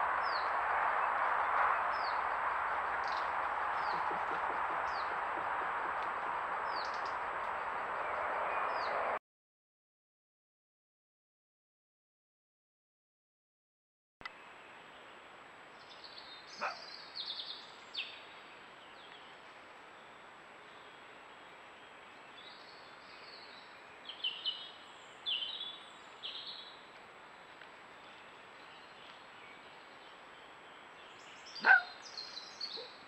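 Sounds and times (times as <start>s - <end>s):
fox high-pitched calls: 31.6s - 32.0s.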